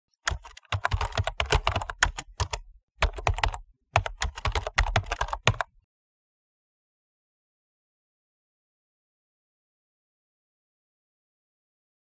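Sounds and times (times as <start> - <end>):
keyboard key clicks: 0.3 - 5.7.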